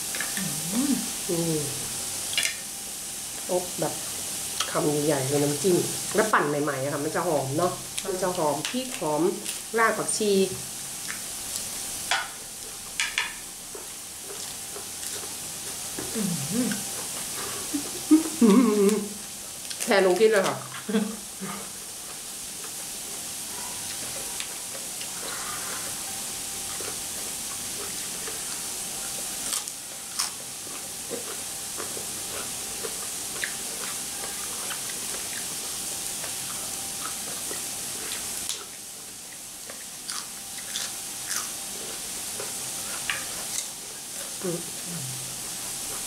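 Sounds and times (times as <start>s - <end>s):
food sizzling on a grill: 0.0s - 46.0s
chewing and crunching: 13.6s - 18.5s, 26.6s - 46.0s.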